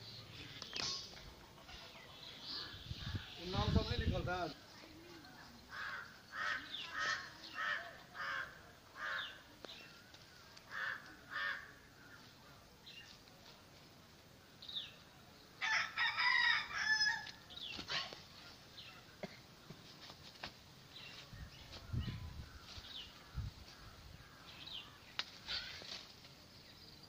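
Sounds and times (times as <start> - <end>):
rooster crowing: 15.6 - 17.3.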